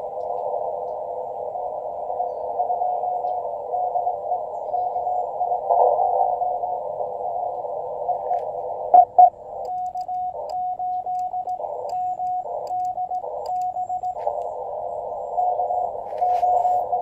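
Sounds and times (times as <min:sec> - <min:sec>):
radio band hiss: 0:00.0 - 0:17.0
morse code sidetone: 0:08.2 - 0:17.0
short loud tone blips: 0:09.0 - 0:14.3.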